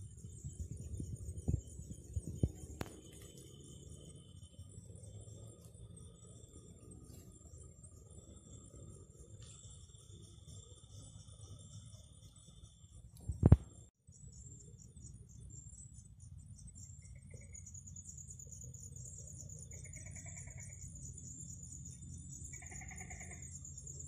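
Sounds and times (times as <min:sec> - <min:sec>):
insect chorus buzzing: 0:00.0 - 0:24.0
animal trilling calls: 0:22.5 - 0:23.4.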